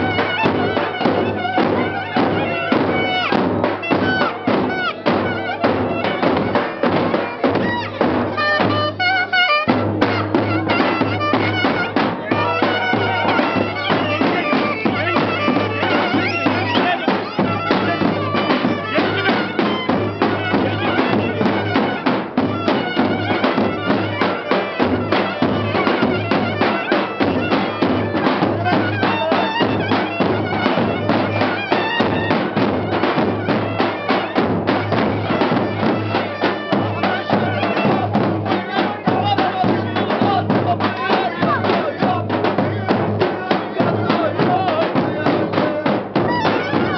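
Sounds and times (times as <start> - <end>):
bass drum beat: 0.0 - 24.3, 34.3 - 46.9
reedy wind instrument melody: 0.0 - 46.9.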